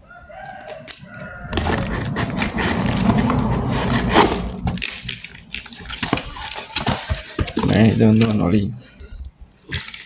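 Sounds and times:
cardboard box scraping: 0:01.5 - 0:05.2.

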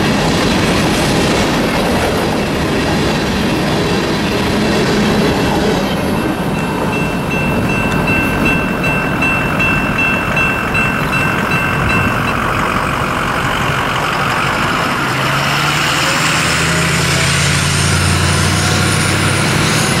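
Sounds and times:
pickup truck passing: 0:04.2 - 0:20.0
electronic crossing bell ringing: 0:05.4 - 0:12.9.

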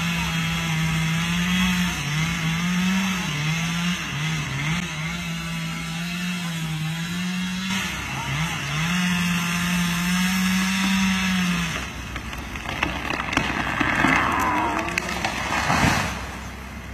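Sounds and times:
chainsaw running at high revs: 0:00.0 - 0:15.8
tree trunk cracking and creaking: 0:11.6 - 0:16.4.

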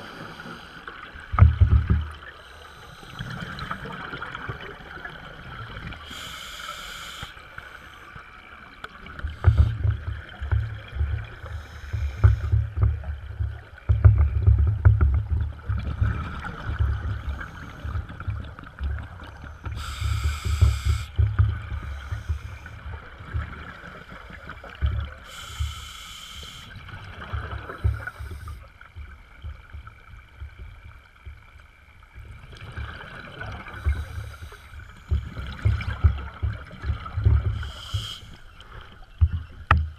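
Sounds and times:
exhaled air bubbling: 0:00.0 - 0:30.6, 0:32.2 - 0:39.9
regulator hissing inhalations: 0:06.0 - 0:08.2, 0:19.7 - 0:21.2, 0:25.2 - 0:26.8, 0:37.6 - 0:38.8.

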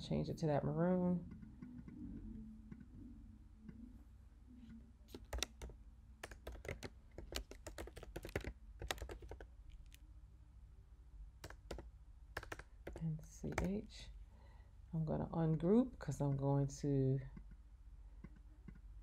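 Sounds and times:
typing on keyboard: 0:05.1 - 0:10.0, 0:11.4 - 0:13.7.

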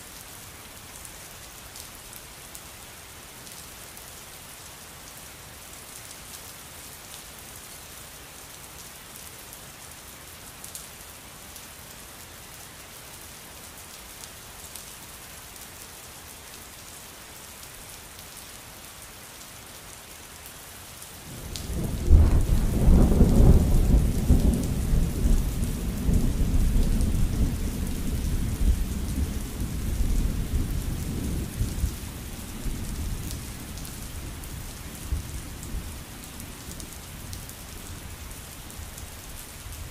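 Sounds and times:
steady rain falling: 0:00.0 - 0:39.9
thunder clap and rumble: 0:21.6 - 0:32.0.

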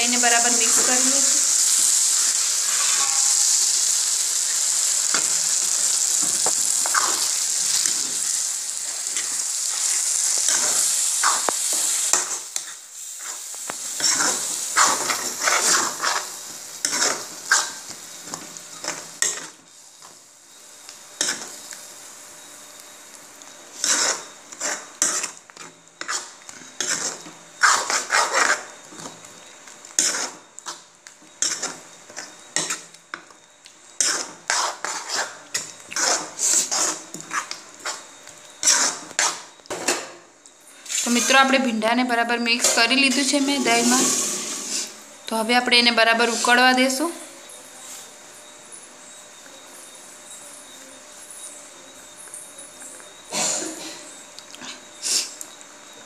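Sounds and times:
food sizzling in a pan: 0:00.0 - 0:56.0
spoon scraping and knocking a pan: 0:09.0 - 0:19.6, 0:23.7 - 0:33.3, 0:34.0 - 0:38.0.

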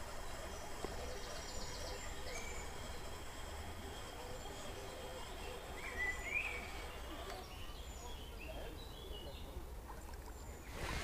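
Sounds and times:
small birds chirping: 0:00.0 - 0:11.0
wind: 0:00.0 - 0:11.0
river rumble: 0:09.7 - 0:11.0.

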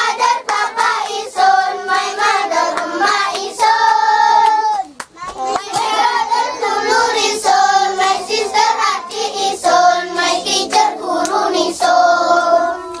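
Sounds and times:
hand claps: 0:00.0 - 0:01.2, 0:01.8 - 0:06.0, 0:07.4 - 0:11.6
children singing together: 0:00.0 - 0:04.8, 0:05.4 - 0:13.0.

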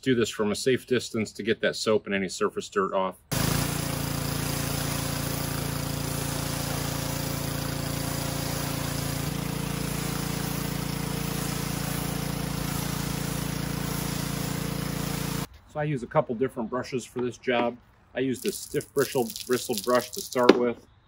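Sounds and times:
pressure washer motor drone: 0:03.3 - 0:15.5
water spray hissing: 0:03.3 - 0:15.5, 0:18.3 - 0:20.6.

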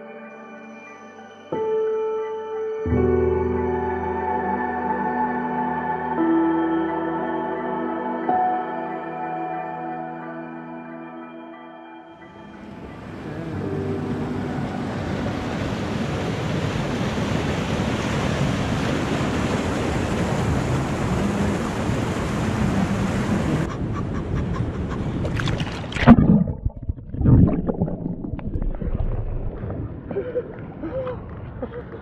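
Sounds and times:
rushing stream water: 0:12.3 - 0:23.8, 0:25.1 - 0:29.6.

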